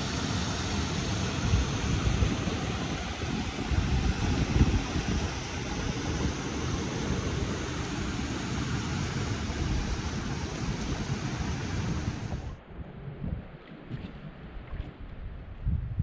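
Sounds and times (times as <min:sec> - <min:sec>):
water pouring over falls: 0:00.0 - 0:12.4.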